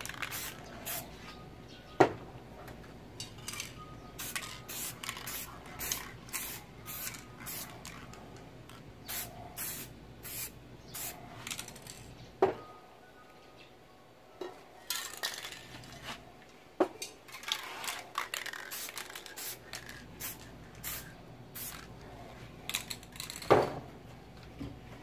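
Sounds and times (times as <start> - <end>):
spray paint can hissing: 0.0 - 1.1, 4.2 - 8.2, 9.1 - 11.9, 17.6 - 21.9.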